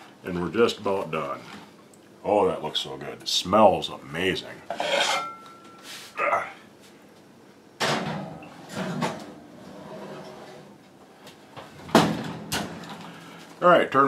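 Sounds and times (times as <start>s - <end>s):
oven door shutting bang: 7.8s - 9.3s, 11.8s - 12.9s.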